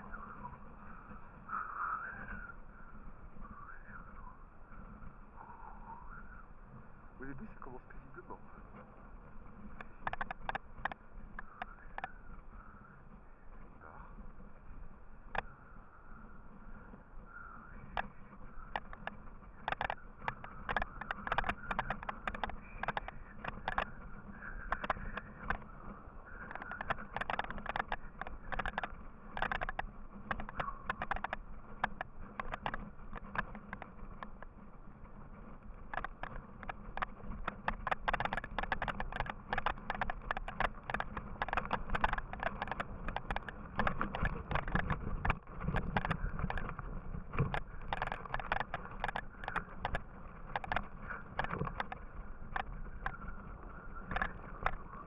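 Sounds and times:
knocks and rattles over bumps: 26.5s - 55.0s.

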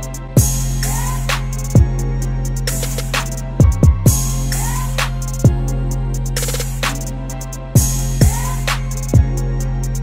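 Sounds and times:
deep kick drum: 3.6s - 4.3s.

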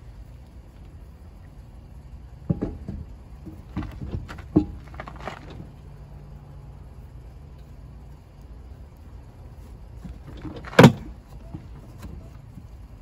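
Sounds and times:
lug nuts clinking on metal: 10.0s - 12.4s.

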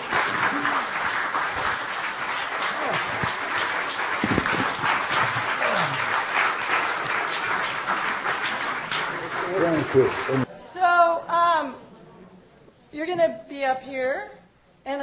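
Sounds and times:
audience applauding: 0.0s - 10.5s.

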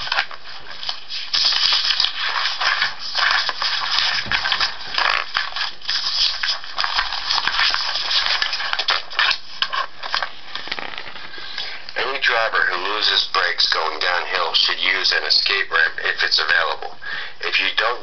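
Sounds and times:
paper pages rustling: 0.0s - 11.8s.

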